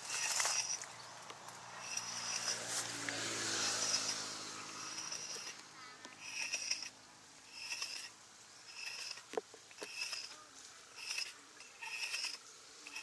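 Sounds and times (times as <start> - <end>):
scraping hiss: 0.0 - 0.9, 1.5 - 13.0.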